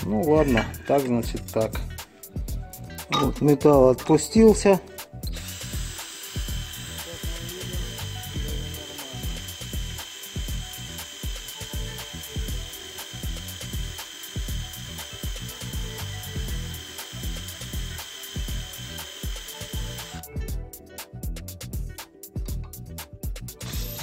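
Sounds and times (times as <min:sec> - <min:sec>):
background music: 0:00.0 - 0:24.0
drill bit grinding into steel: 0:05.3 - 0:20.3, 0:23.6 - 0:24.0.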